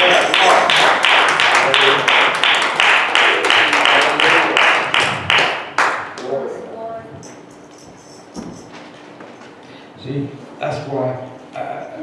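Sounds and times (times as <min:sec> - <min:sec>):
hand percussion beat: 0:07.2 - 0:08.8.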